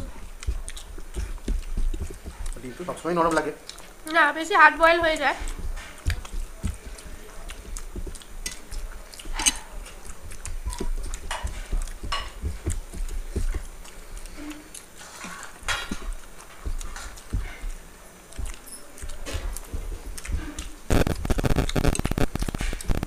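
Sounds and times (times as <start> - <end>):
mouth sounds of eating: 0.0 - 23.0.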